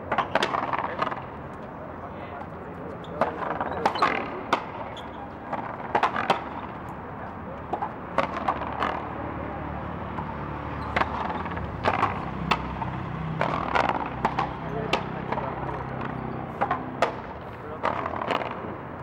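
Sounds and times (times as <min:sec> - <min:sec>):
ball smacking off rackets and wall: 0:10.9 - 0:18.6.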